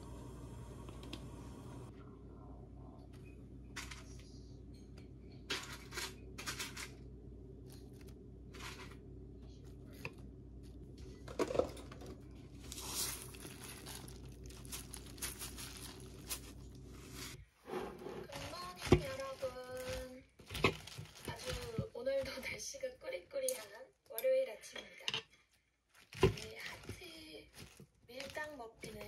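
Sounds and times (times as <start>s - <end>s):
low steady hum: 0.0s - 22.8s
food packaging rustling: 7.6s - 9.0s, 10.6s - 22.6s, 25.6s - 29.0s.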